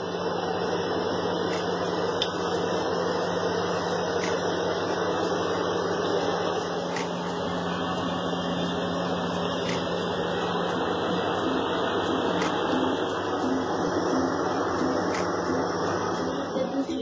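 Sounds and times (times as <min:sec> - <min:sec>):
low hum: 0:00.0 - 0:17.0.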